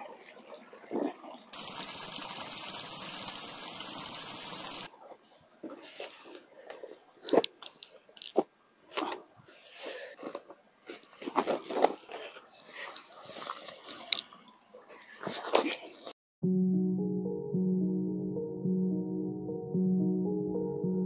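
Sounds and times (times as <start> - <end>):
small stream rushing: 1.5 - 4.9.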